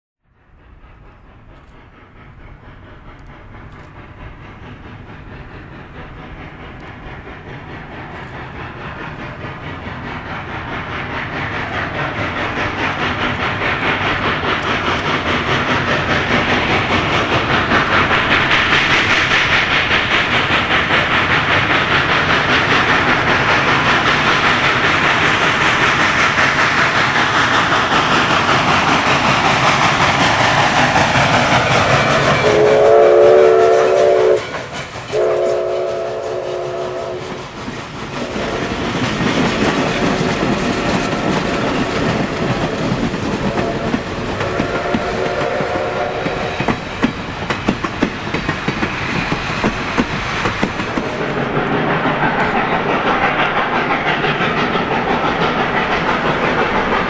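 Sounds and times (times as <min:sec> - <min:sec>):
steam locomotive exhaust chuffing: 0:00.3 - 0:57.0
train wheels clicking over rail joints: 0:00.3 - 0:57.0
steam whistle blasts: 0:32.4 - 0:34.5, 0:35.1 - 0:37.2, 0:43.6 - 0:46.6.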